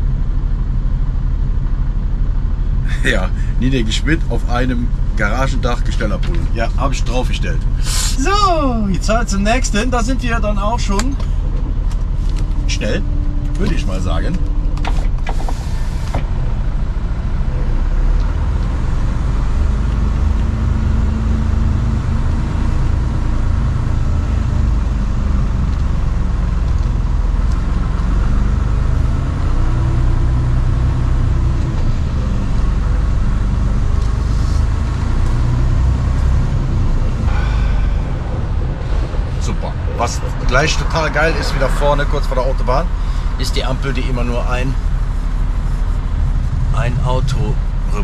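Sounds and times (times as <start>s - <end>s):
road noise: 0.0s - 48.0s
truck diesel engine: 0.0s - 48.0s
brief air hisses: 7.8s - 8.2s.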